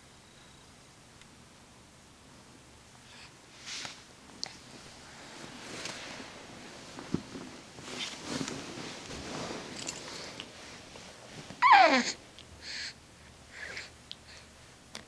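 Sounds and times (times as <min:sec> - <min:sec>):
handling rustle: 0:04.7 - 0:11.6
toddler squealing: 0:11.6 - 0:12.2.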